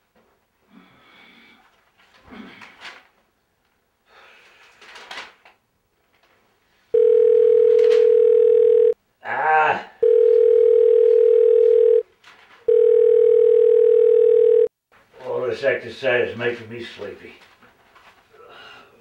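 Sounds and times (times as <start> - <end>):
telephone ringing electronically: 7.0 - 9.0, 10.0 - 12.0, 12.7 - 14.7
man groaning: 9.2 - 10.0.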